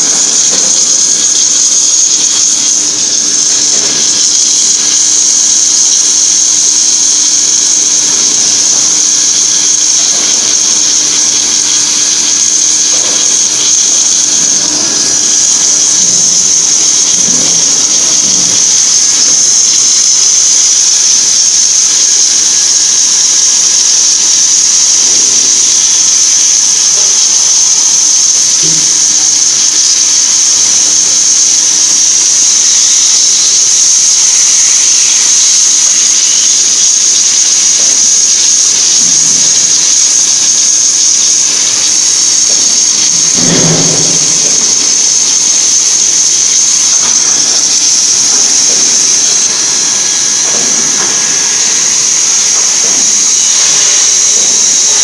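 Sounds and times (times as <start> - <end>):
welding machine hissing: 0.0 - 55.0
low machine hum: 43.0 - 46.6.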